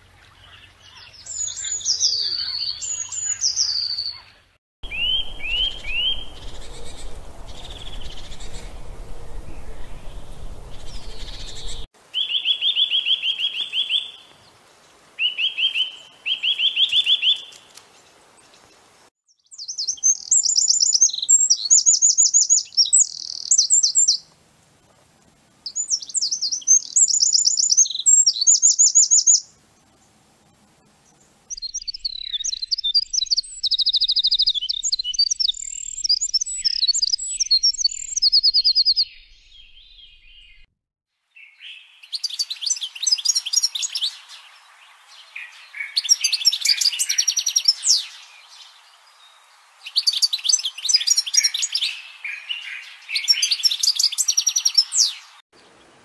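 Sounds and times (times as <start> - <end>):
wren singing trills and warbles: 0.2 - 14.3, 19.2 - 24.2, 25.6 - 30.0, 31.0 - 40.7, 41.4 - 55.8
nuthatch trills: 1.3 - 11.9.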